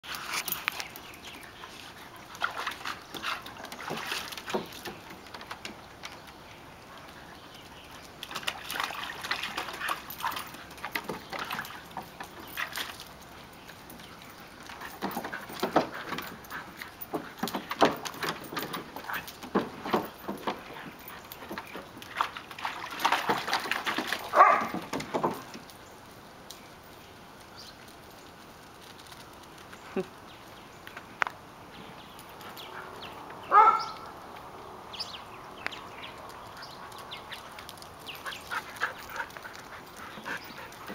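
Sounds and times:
water splashing in wading pool: 0:02.0 - 0:05.4, 0:08.2 - 0:11.9, 0:22.1 - 0:24.8
dogs barking: 0:24.3 - 0:24.7, 0:32.6 - 0:34.2.

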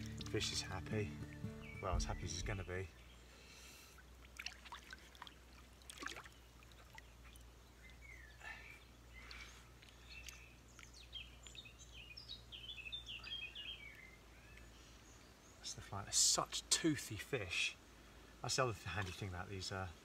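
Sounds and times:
water splashing and dribbling: 0:00.0 - 0:02.7, 0:03.9 - 0:08.1, 0:09.1 - 0:11.5, 0:18.7 - 0:19.6
birds chirping: 0:00.0 - 0:04.0, 0:05.2 - 0:17.1.

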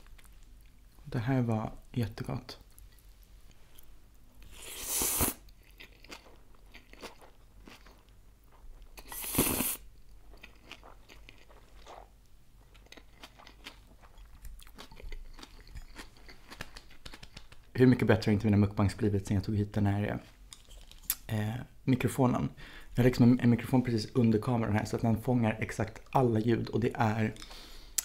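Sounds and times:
slurping noodles: 0:04.4 - 0:05.4, 0:09.0 - 0:09.8
chewing and crunching vegetables: 0:05.4 - 0:17.6.

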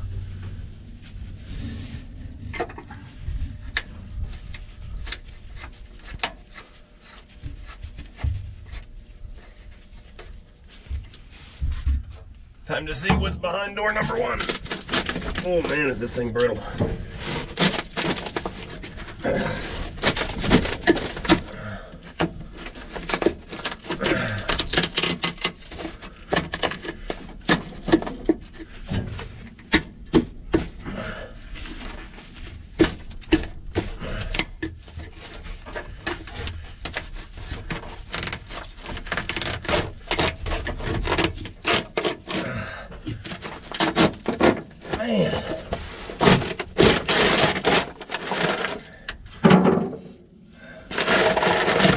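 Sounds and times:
rubber crackling and breaking: 0:13.1 - 0:49.1
screwdriver scraping rubber hose: 0:13.9 - 0:28.4, 0:32.8 - 0:49.1, 0:50.9 - 0:51.9.

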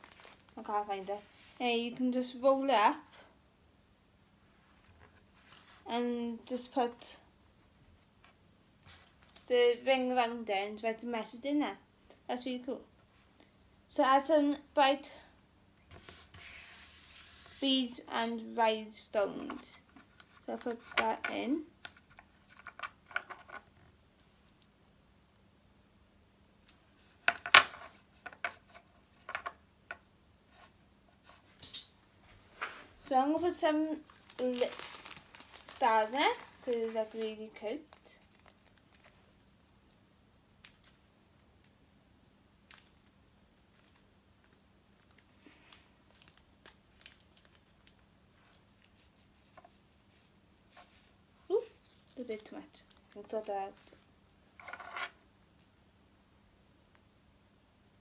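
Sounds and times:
light packet rustling: 0:00.0 - 0:00.7, 0:33.4 - 0:40.0, 0:42.6 - 0:54.1.

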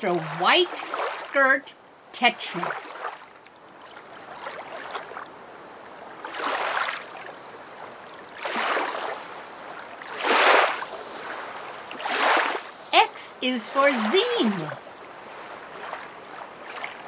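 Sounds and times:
rushing water surging: 0:06.2 - 0:17.0.

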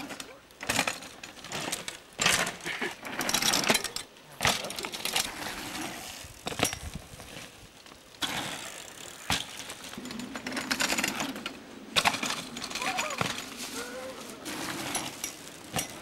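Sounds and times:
bike parts rattling: 0:00.0 - 0:16.0
bike tyres on loose dirt: 0:00.0 - 0:16.0
bike landing knocks: 0:03.3 - 0:05.2, 0:08.2 - 0:13.6, 0:14.5 - 0:16.0.

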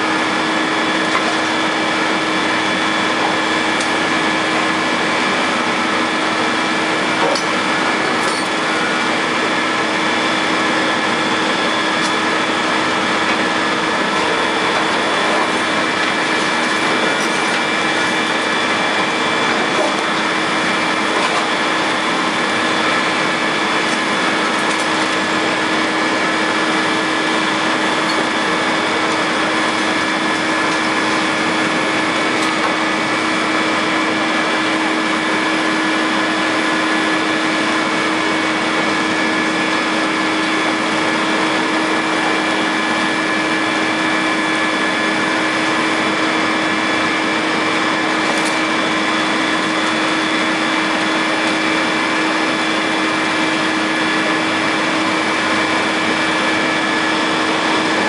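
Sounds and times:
excavator engine droning: 0:00.0 - 0:58.0
steady high whine: 0:00.0 - 0:58.0.

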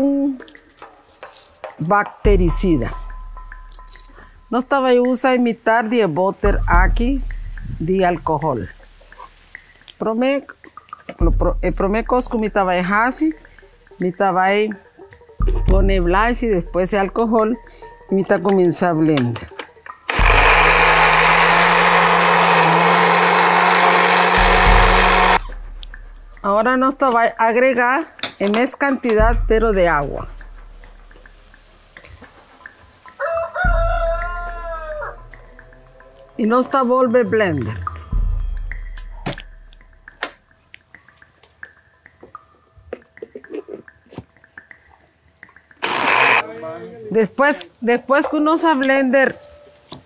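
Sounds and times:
blender running: 0:20.1 - 0:25.4, 0:45.8 - 0:46.4
blender motor winding down: 0:20.1 - 0:25.5, 0:45.8 - 0:46.4.

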